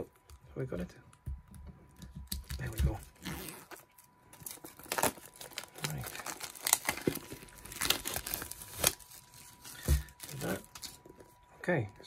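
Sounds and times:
plastic wrap crinkling: 2.2s - 11.4s.

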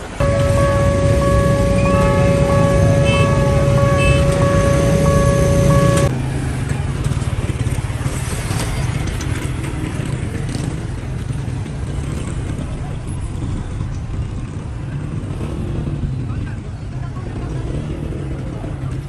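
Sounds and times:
low engine rumble: 0.0s - 7.2s
motorcycle engines: 0.0s - 19.0s
road traffic: 0.0s - 19.0s
pulsing high beep: 0.2s - 6.1s
steady electronic tone: 0.2s - 6.1s.

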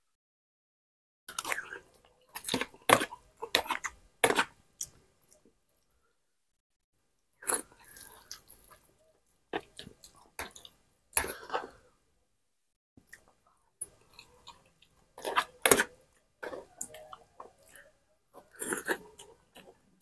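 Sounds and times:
man chewing and slurping: 13.0s - 20.0s.

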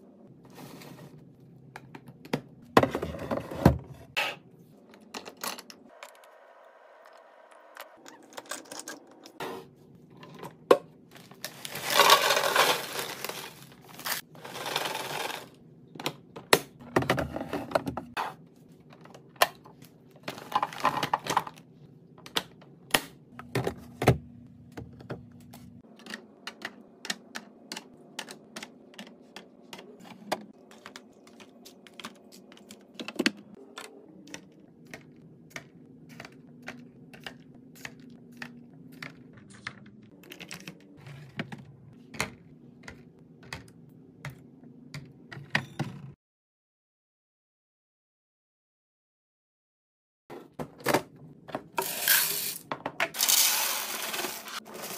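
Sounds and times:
crinkly packaging rustling: 11.1s - 14.3s
plastic packages clicking into bins: 11.2s - 15.5s.

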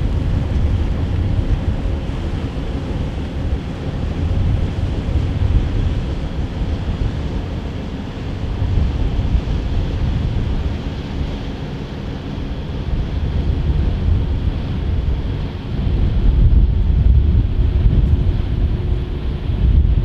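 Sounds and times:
wind buffeting microphone: 0.0s - 20.0s.

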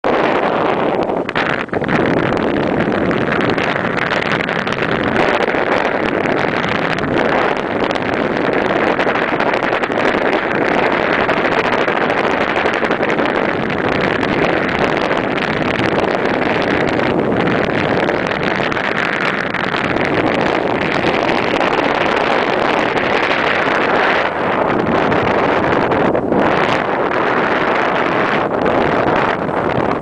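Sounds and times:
wind rushing over microphone: 0.0s - 30.0s.

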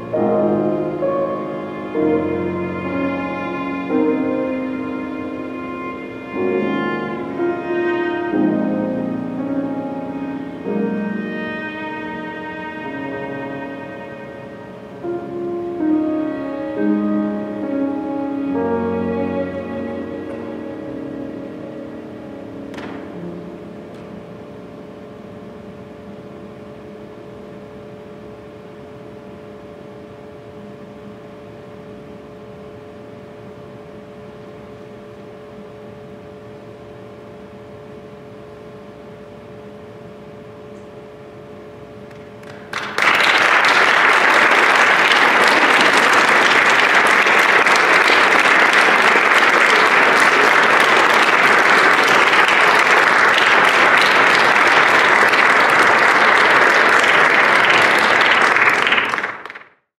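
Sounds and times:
piano and violin music: 0.0s - 25.2s
audience applause: 42.2s - 59.8s.

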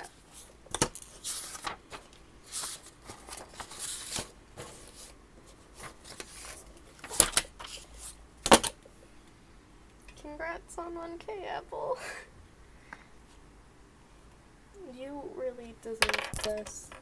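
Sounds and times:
objects shifted and rustled: 0.1s - 8.8s.

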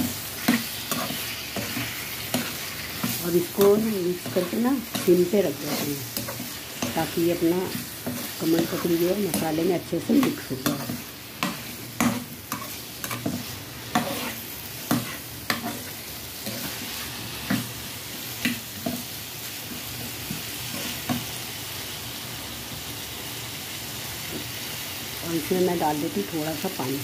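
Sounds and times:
metal spatula scraping a pan: 0.0s - 17.7s
food sizzling: 0.0s - 27.0s.

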